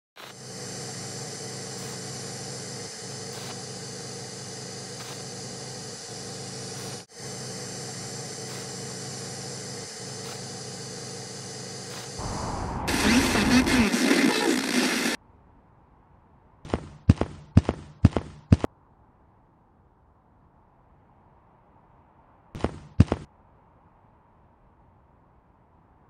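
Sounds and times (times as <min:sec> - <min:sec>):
electronic hum and hiss: 0:00.2 - 0:15.2
engine-like mechanical rumble: 0:12.2 - 0:13.7.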